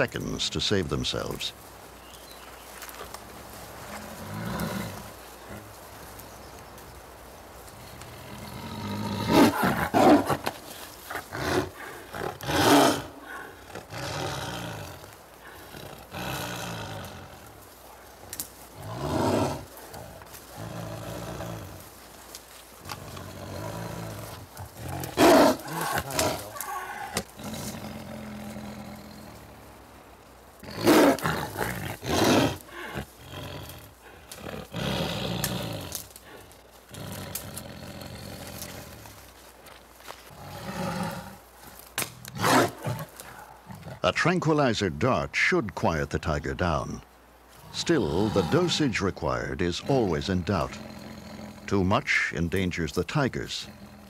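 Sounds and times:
tiger roaring: 7.9s - 21.9s, 22.8s - 29.8s, 30.6s - 39.2s, 40.3s - 41.4s, 42.2s - 44.7s, 47.6s - 54.0s.

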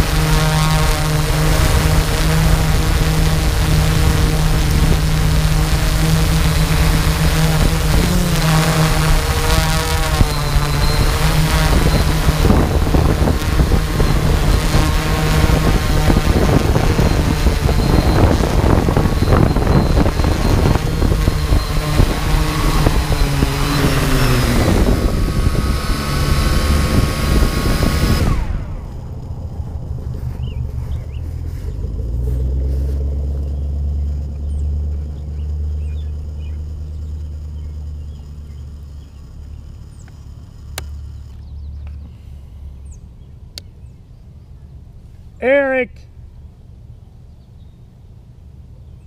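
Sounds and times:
drone propellers whining: 0.0s - 49.0s
low steady rumble: 0.0s - 49.0s.

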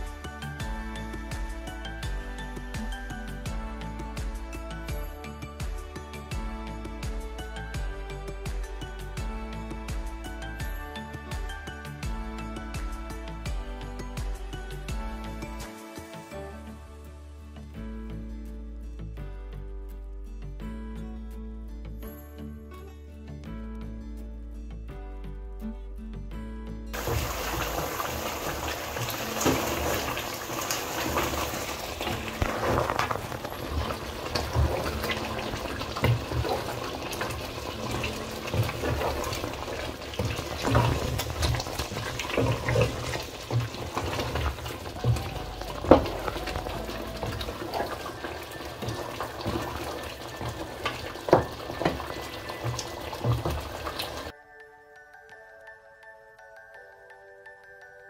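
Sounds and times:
food sizzling and bubbling: 27.0s - 54.3s.

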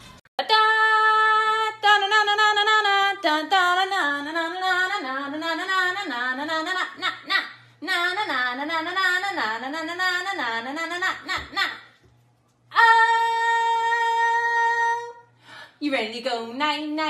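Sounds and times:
wordless singing voice: 0.4s - 12.0s.

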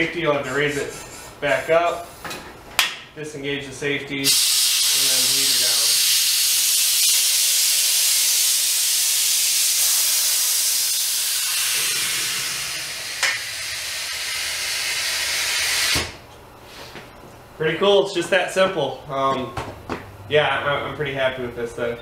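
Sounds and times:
compressed air hissing: 4.2s - 17.0s.

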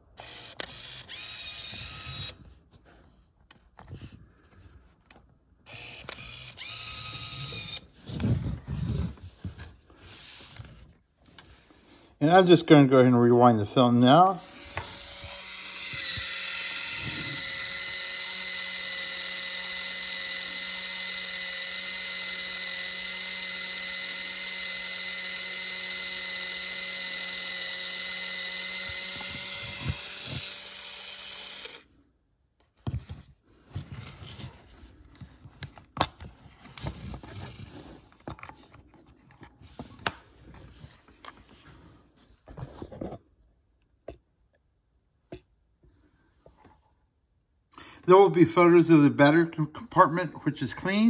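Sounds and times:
camera motor whining: 0.2s - 2.5s, 5.6s - 9.2s, 14.4s - 31.9s.

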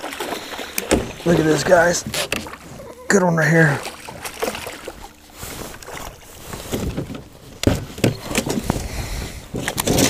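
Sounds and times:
fish splashing at water surface: 3.8s - 6.2s.

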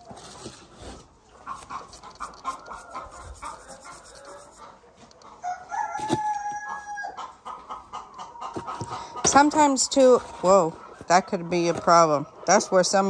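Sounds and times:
chickens clucking: 0.0s - 13.0s
rooster crowing: 2.7s - 4.6s, 5.4s - 7.2s.

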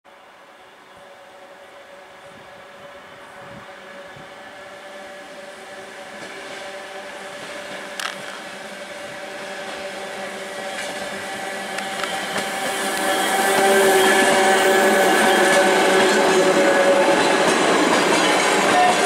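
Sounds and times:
electric railcar approaching: 0.1s - 19.0s.

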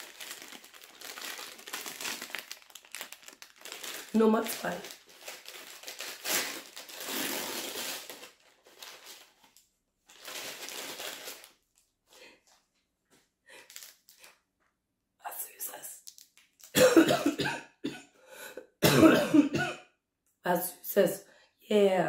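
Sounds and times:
paper bag tearing and rustling: 0.0s - 11.6s.

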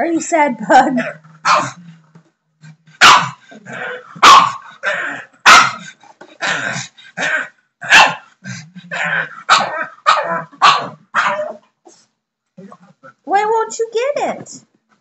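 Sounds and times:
dog grumbling: 0.8s - 11.6s
dog barking: 1.4s - 1.8s, 3.0s - 3.4s, 4.2s - 4.7s, 5.4s - 5.9s, 7.4s - 8.3s, 9.5s - 11.6s.

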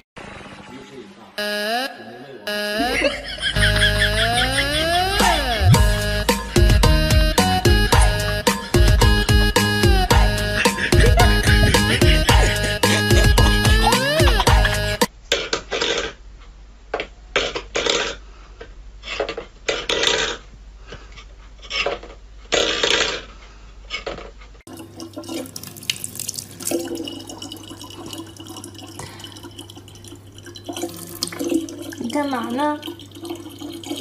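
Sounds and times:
tap water trickling into bottle: 24.7s - 34.0s.

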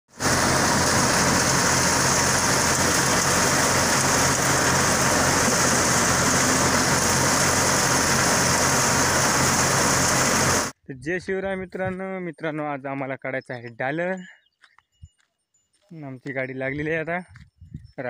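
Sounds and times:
engine hum: 0.1s - 10.8s
thresher hissing: 0.1s - 10.8s.

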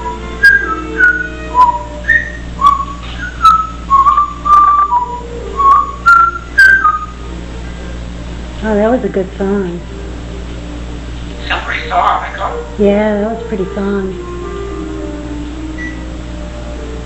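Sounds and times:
parrot whistling a tune: 0.0s - 7.4s, 15.7s - 16.1s.

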